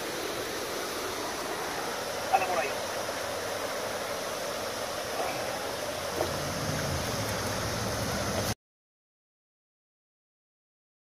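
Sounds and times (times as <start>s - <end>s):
creek water rushing: 0.0s - 8.6s
light water splashes: 0.0s - 8.6s.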